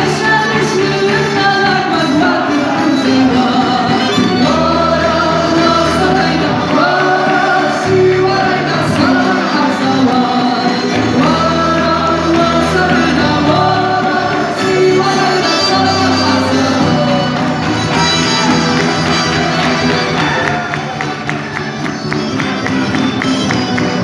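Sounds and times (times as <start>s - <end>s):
woman singing into a microphone: 0.0s - 18.1s
live band accompaniment: 0.0s - 24.0s.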